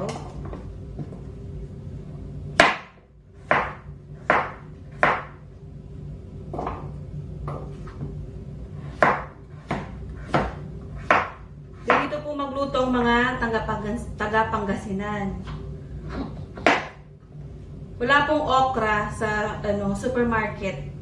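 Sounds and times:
knife chopping on cutting board: 2.6s - 5.4s, 8.9s - 12.2s, 16.2s - 17.0s.

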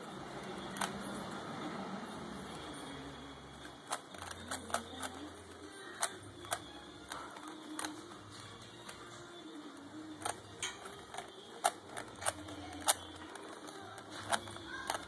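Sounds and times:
puzzle cube plastic clicks: 3.6s - 9.1s, 10.2s - 15.0s.

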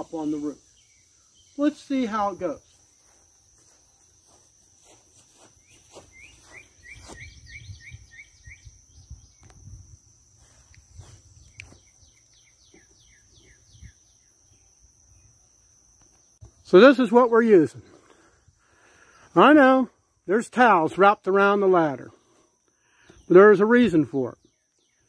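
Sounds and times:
high insect drone: 0.0s - 25.0s
bird calling: 5.6s - 9.6s, 11.4s - 14.6s.

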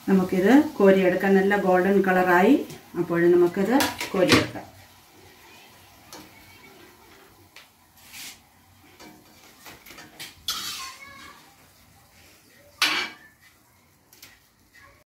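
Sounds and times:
metal skimmer clinking against pans: 9.9s - 11.4s, 12.8s - 13.3s.

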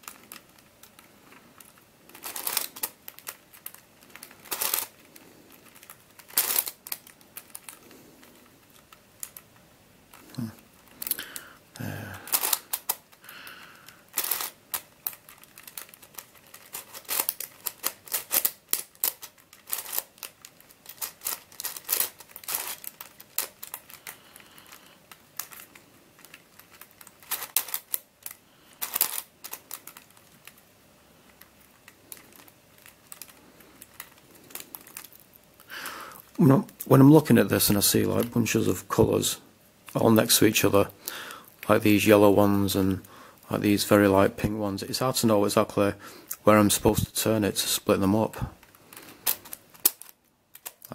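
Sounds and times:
puzzle pieces clicking as turned: 0.0s - 11.4s, 12.3s - 35.3s, 48.6s - 50.9s.

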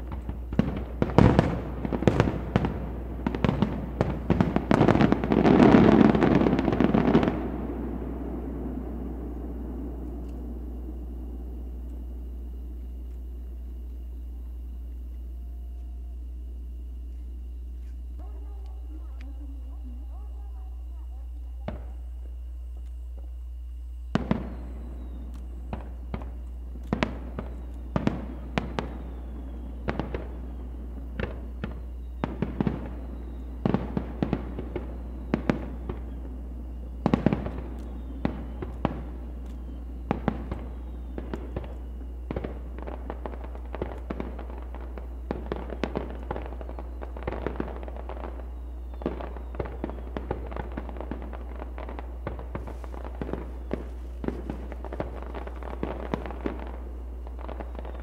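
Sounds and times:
fireworks booming and cracking: 0.0s - 58.0s.

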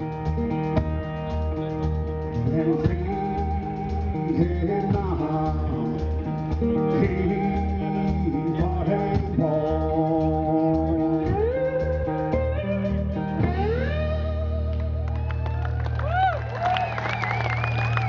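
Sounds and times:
resonator slide guitar: 0.0s - 14.9s
low beat: 0.0s - 15.2s
person singing: 2.4s - 12.1s.

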